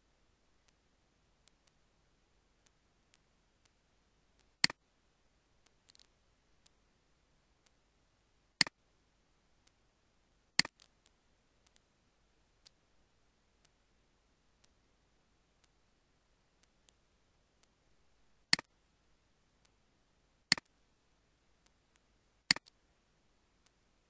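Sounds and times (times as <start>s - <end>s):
faint ticks: 5.6s - 6.8s, 10.6s - 11.9s, 12.6s - 12.8s, 20.5s - 20.8s, 21.6s - 22.8s.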